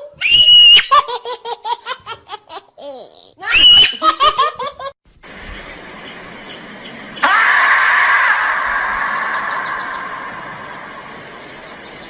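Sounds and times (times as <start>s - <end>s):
person laughing shrilly: 3.4s - 4.9s
steady hiss: 5.1s - 7.3s, 8.7s - 12.0s.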